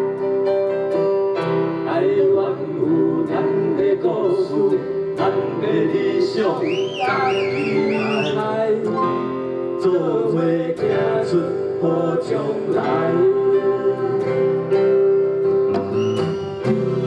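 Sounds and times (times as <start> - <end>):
person singing: 1.8 - 15.1.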